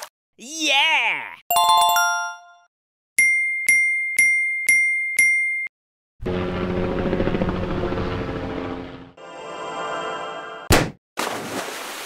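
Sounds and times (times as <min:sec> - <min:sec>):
bright chime dings: 0:01.5 - 0:05.7.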